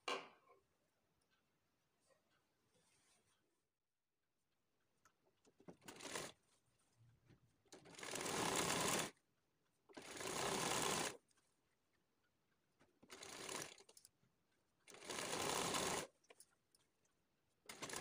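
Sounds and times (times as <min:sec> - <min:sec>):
sewing machine stitching: 0:05.6 - 0:06.4, 0:07.7 - 0:09.2, 0:09.9 - 0:11.2, 0:13.0 - 0:14.0, 0:14.9 - 0:16.2, 0:17.7 - 0:18.0.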